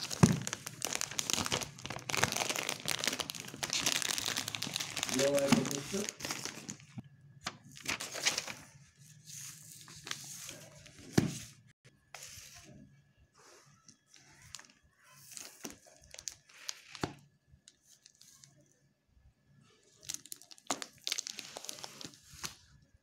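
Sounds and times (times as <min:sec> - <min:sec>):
sharp crack of packaging: 0:00.0 - 0:06.7
paper and plastic packaging rustling: 0:00.0 - 0:12.8, 0:13.4 - 0:18.5, 0:20.0 - 0:22.8.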